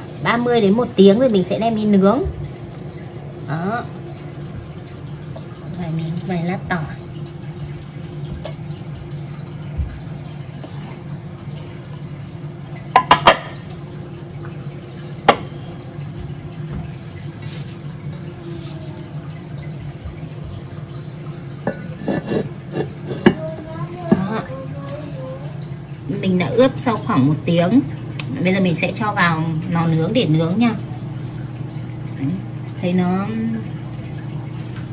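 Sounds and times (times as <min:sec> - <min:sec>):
steady low hum: 0:00.0 - 0:34.9
kitchenware clinking: 0:12.8 - 0:13.7, 0:21.6 - 0:24.4.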